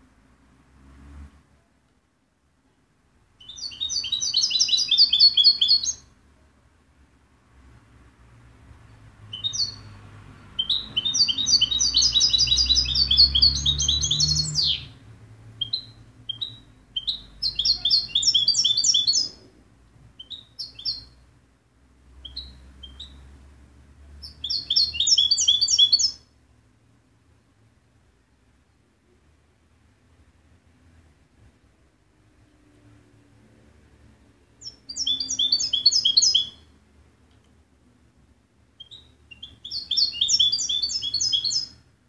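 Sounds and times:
bird twittering trills: 0:03.4 - 0:06.1, 0:09.3 - 0:15.0, 0:15.6 - 0:19.4, 0:20.2 - 0:21.2, 0:22.2 - 0:23.3, 0:24.2 - 0:26.3, 0:34.6 - 0:36.7, 0:38.8 - 0:41.8.

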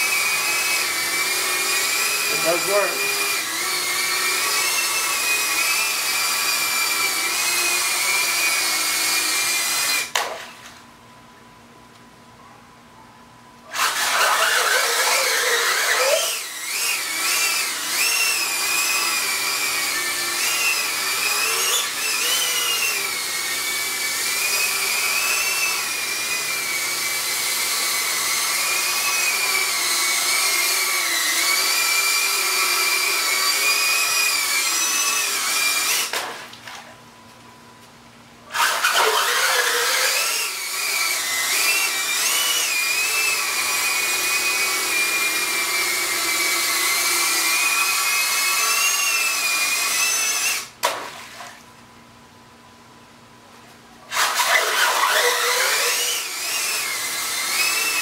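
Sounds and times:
drone motors whining: 0:00.0 - 0:10.1, 0:13.7 - 0:36.1.

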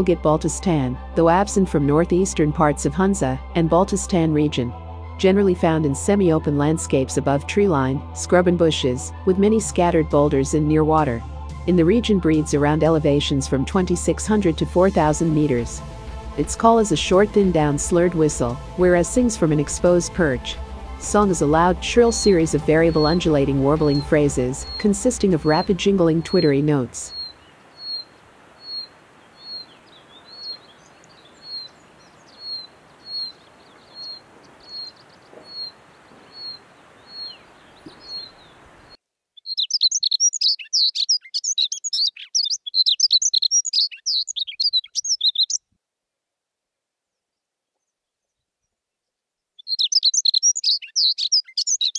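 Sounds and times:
bird song jingling twitter: 0:22.9 - 0:38.6, 0:39.4 - 0:45.6, 0:49.6 - 0:51.9.

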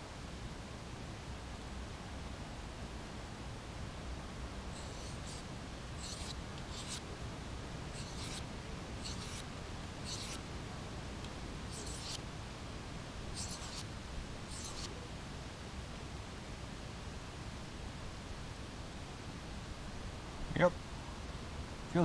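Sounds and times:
knife scraping on sharpening stone: 0:04.8 - 0:05.4, 0:06.0 - 0:07.0, 0:08.0 - 0:08.4, 0:09.0 - 0:09.4, 0:10.0 - 0:10.4, 0:11.7 - 0:12.2, 0:13.4 - 0:13.8, 0:14.5 - 0:14.9.

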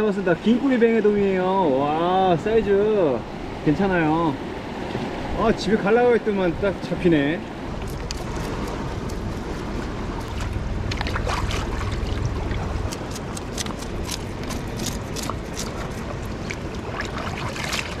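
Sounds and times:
surf against rocks: 0:00.0 - 0:18.0
small water splashes: 0:07.8 - 0:18.0
scissors clicking: 0:12.9 - 0:16.0.

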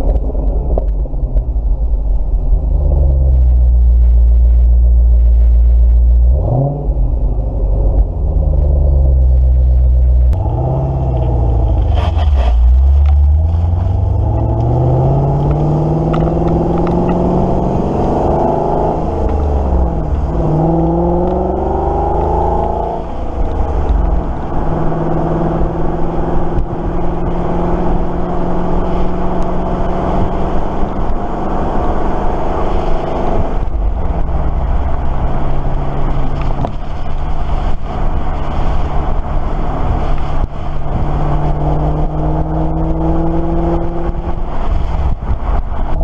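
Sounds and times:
car engine exhaust note: 0:00.0 - 0:46.0.

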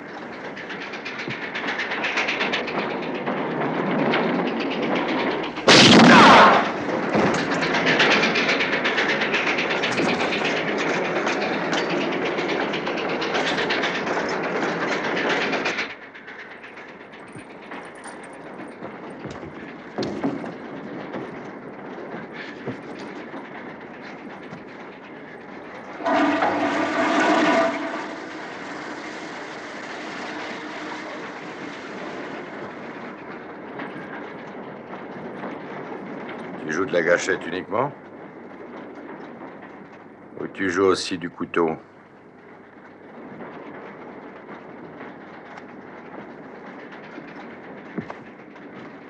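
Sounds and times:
steam train rumbling: 0:00.0 - 0:49.0
steam whistle blowing: 0:26.0 - 0:29.4.

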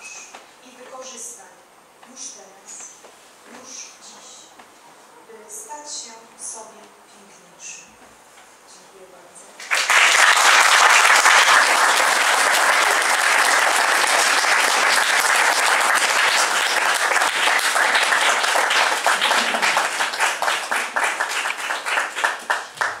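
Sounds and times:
small audience applauding: 0:09.6 - 0:23.0.

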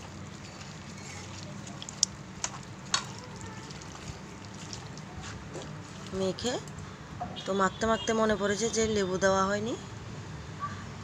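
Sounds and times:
wet squelching of mixing: 0:00.0 - 0:06.9.

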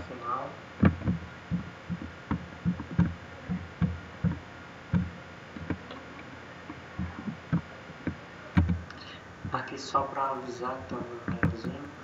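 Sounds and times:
faint steady hiss: 0:00.0 - 0:12.0
soft low knocks: 0:00.8 - 0:09.6.

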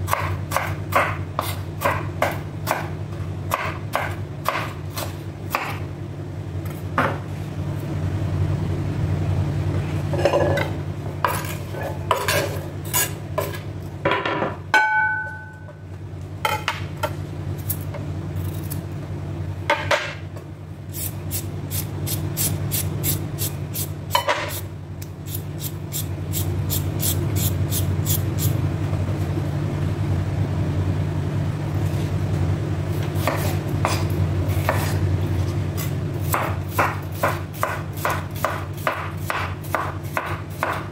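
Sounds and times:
steady low hum: 0:00.0 - 0:40.9
knife chopping on wooden board: 0:00.1 - 0:02.9, 0:03.5 - 0:05.8, 0:33.2 - 0:35.0, 0:35.8 - 0:40.9.

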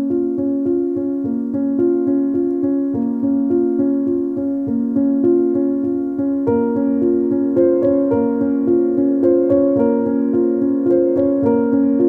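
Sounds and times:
piano-like keyboard music: 0:00.0 - 0:12.0.

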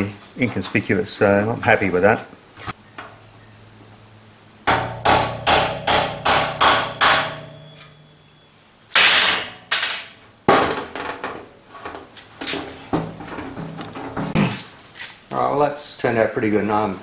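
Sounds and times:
hammer tapping steel punch: 0:04.7 - 0:08.0.

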